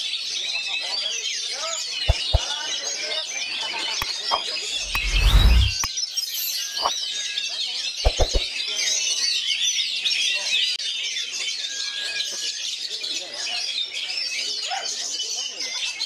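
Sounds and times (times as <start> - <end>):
sharp clicks: 2.1 - 2.4
low rumble: 4.8 - 5.9.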